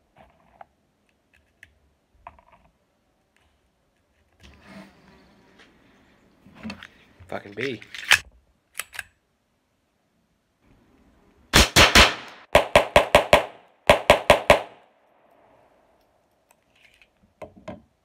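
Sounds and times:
pistol shots fired rapidly: 11.6s - 14.8s.

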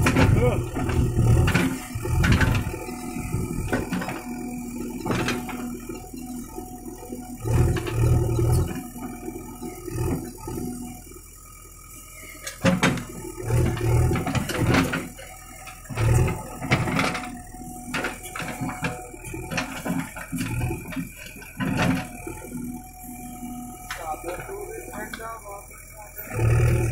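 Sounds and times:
bucket and linkage clanking: 0.0s - 6.6s, 12.4s - 22.7s, 23.8s - 26.9s
diesel engine running: 0.0s - 26.9s.

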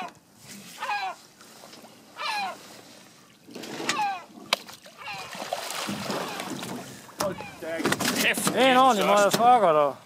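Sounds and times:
water splashing against boat: 0.6s - 10.0s
gull calling: 2.2s - 2.6s, 3.9s - 4.3s, 5.0s - 5.4s, 7.2s - 7.8s.

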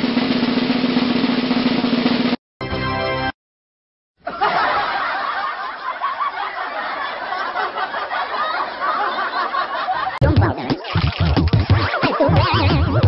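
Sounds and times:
crowd laughing: 4.2s - 13.0s.

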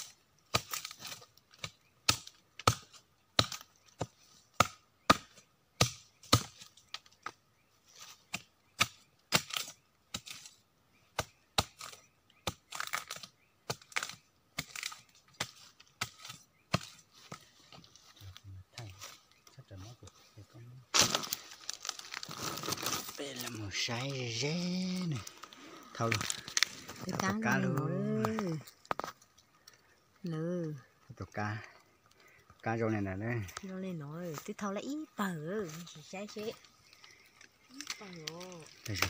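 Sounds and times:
machete chopping wood: 0.5s - 6.7s, 8.3s - 10.5s, 11.2s - 17.0s, 20.9s - 21.4s.

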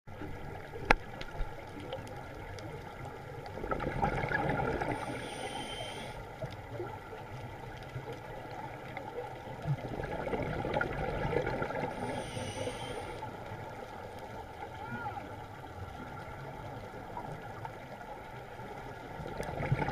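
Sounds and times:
exhaled bubbles rushing: 3.5s - 5.2s, 8.8s - 12.1s, 19.2s - 19.9s
regulator hissing inhale: 4.9s - 6.4s, 11.9s - 13.3s.

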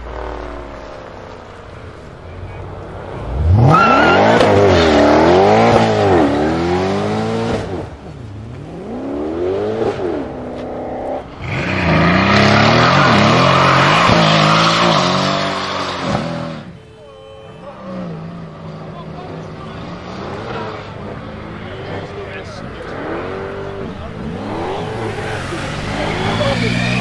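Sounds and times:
car engine revving: 0.0s - 16.8s, 17.8s - 27.0s
tyre squeal: 11.4s - 18.4s.

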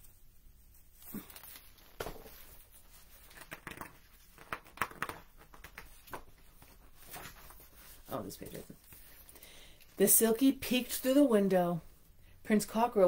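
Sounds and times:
book pages rustling: 0.7s - 9.4s.

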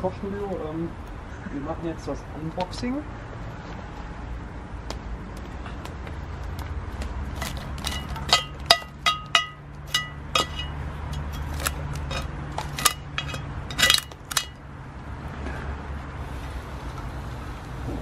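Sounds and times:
metal tongs clinking on lid: 7.9s - 14.6s.

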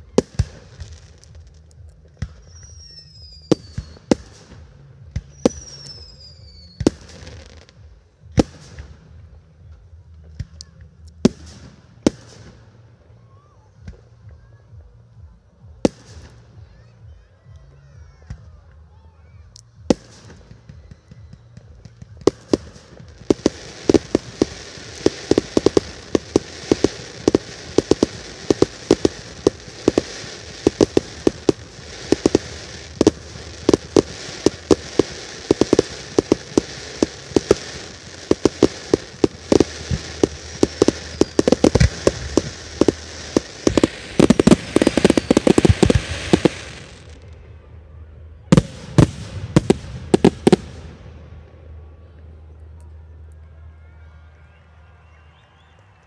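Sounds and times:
fireworks bangs: 19.9s - 47.4s, 48.5s - 51.5s
steady hiss: 22.5s - 47.2s.

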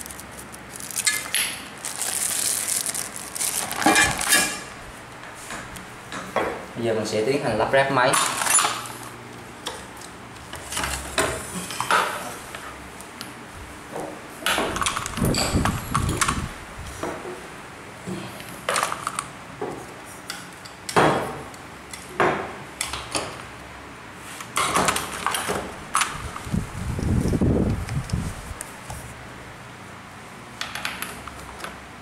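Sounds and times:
clinks and knocks of metal parts: 0.0s - 1.6s, 3.7s - 4.7s, 14.5s - 16.4s.

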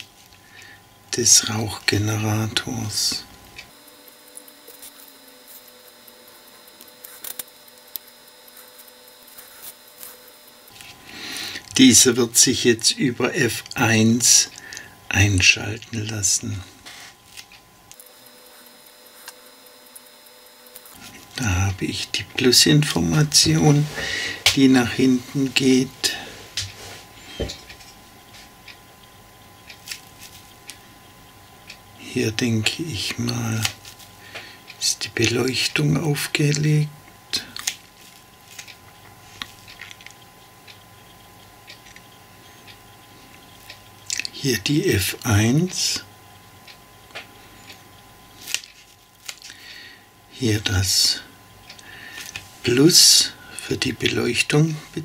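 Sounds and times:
faint steady hum: 0.0s - 55.0s
faint steady high tone: 18.1s - 29.7s.

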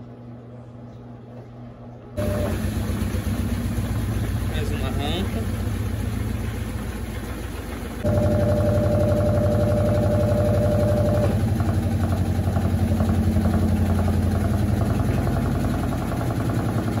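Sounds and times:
washing machine spinning: 0.0s - 17.0s
high steady whine: 2.2s - 17.0s.

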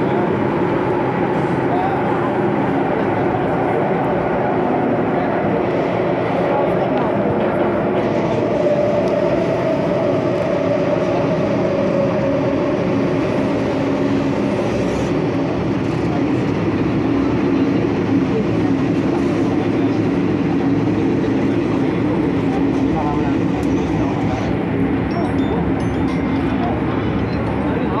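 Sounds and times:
subway train rumbling: 0.0s - 28.0s.

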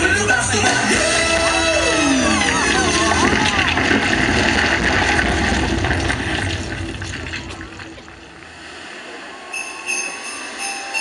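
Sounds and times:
music over loudspeakers: 0.0s - 3.2s
sleigh bells jingling: 9.5s - 11.0s.

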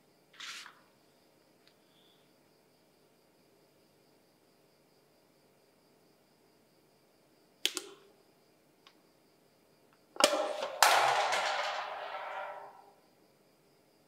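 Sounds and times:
metal can clicks: 10.2s - 12.8s
metal can clattering on ground: 10.2s - 12.9s.

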